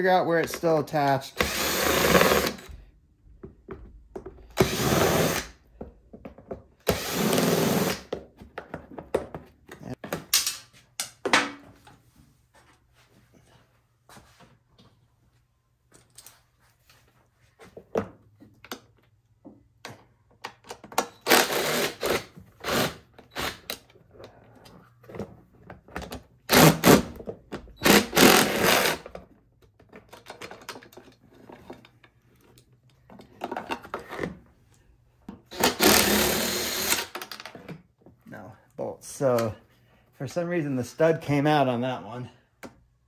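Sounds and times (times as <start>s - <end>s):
tools and plastic parts clattering: 17.6s - 21.3s, 23.1s - 26.5s, 29.0s - 34.5s, 36.9s - 38.2s
power tool rattling out bolts: 27.8s - 29.2s, 35.4s - 37.6s.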